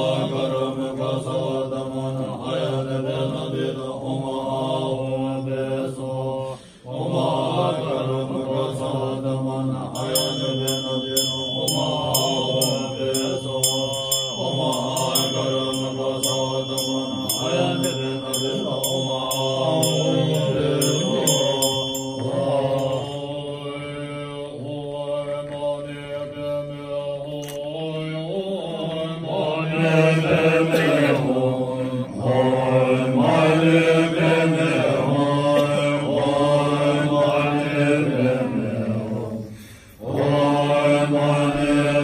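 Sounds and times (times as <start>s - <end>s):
monks chanting in deep voices: 0.0s - 42.0s
high metallic ringing strokes: 9.6s - 24.5s.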